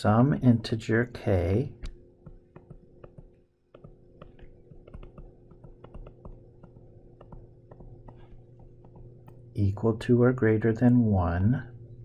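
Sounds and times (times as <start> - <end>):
steady low hum: 0.0 - 12.0
stylus tapping on touchscreen: 1.8 - 9.5.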